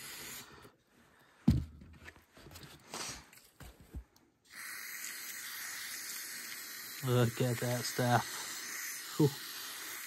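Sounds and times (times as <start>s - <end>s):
spray hissing: 0.0s - 0.6s, 4.5s - 10.0s.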